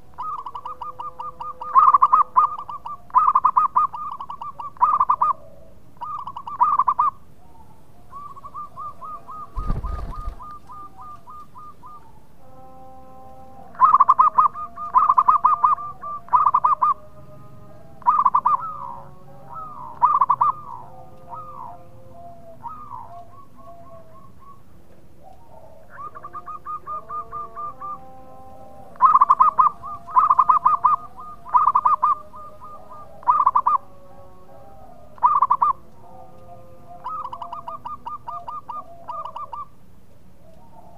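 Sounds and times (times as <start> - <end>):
fainter lower bird calls: 0.0 - 17.1, 17.8 - 39.8
dove cooing: 0.0 - 40.9.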